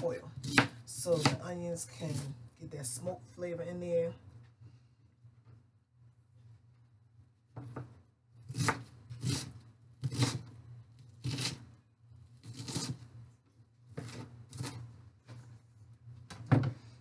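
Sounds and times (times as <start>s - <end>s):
knife chopping on cutting board: 0.4s - 1.4s, 8.5s - 10.4s.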